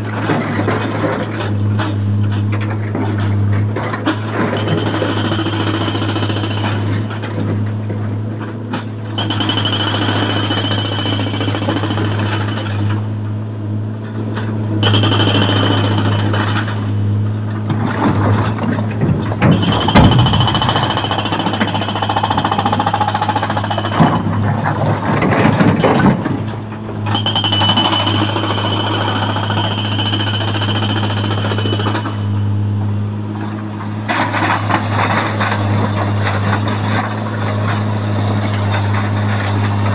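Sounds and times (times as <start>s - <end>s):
diesel engine droning: 0.0s - 39.9s
rock and mud clattering into truck: 17.4s - 22.7s, 23.3s - 28.6s.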